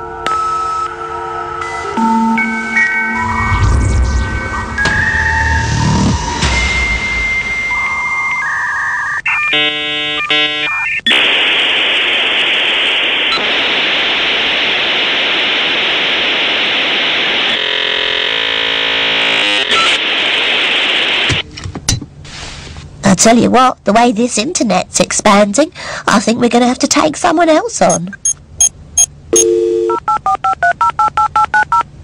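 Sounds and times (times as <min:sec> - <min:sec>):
loud hissing static: 0:11.1 - 0:21.4
dial-up modem handshake tones: 0:29.4 - 0:31.8.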